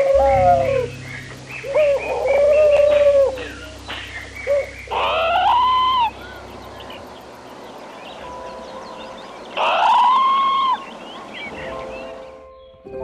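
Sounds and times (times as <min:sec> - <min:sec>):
steady low hum: 0:00.0 - 0:09.6
bird calls: 0:00.0 - 0:12.9
high bird chirps: 0:00.0 - 0:12.9.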